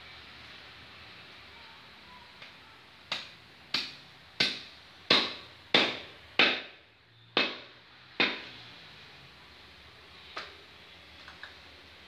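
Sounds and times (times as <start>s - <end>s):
cleaver chopping on wooden block: 3.1s - 6.8s, 7.4s - 8.4s.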